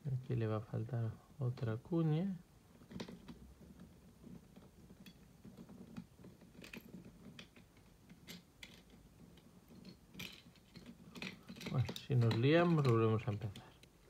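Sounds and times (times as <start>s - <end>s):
plastic puzzle pieces clicking: 4.3s - 14.0s.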